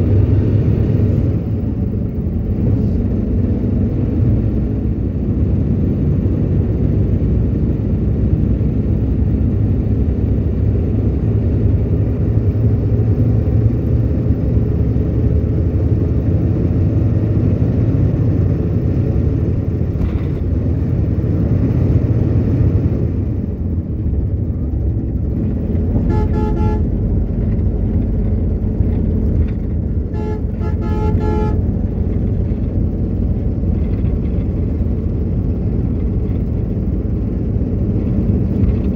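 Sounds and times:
coach rumbling along road: 0:00.0 - 0:38.9
horn honks: 0:26.0 - 0:27.0, 0:30.0 - 0:31.8.

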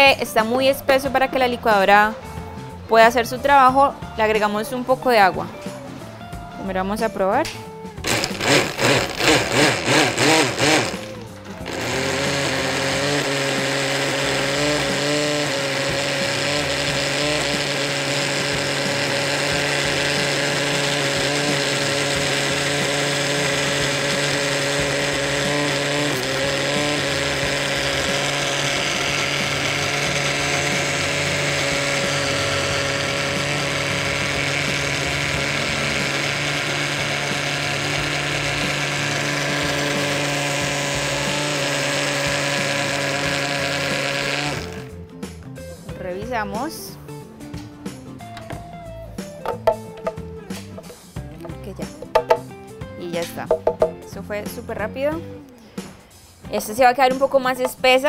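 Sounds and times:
blender running: 0:08.0 - 0:45.1, 0:49.4 - 0:51.1.

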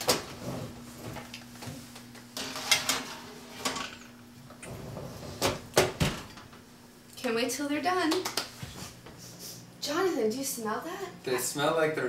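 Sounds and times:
baking sheet scraping on oven rack: 0:02.4 - 0:04.0.

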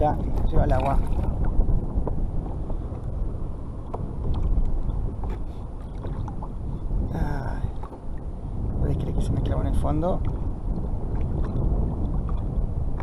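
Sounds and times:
faint ticks and splashes: 0:00.0 - 0:02.2
wind on microphone: 0:00.0 - 0:13.0.

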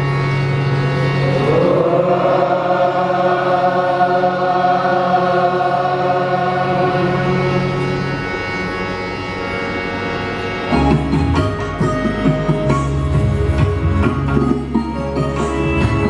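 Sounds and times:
boys chanting in unison: 0:01.2 - 0:07.5.

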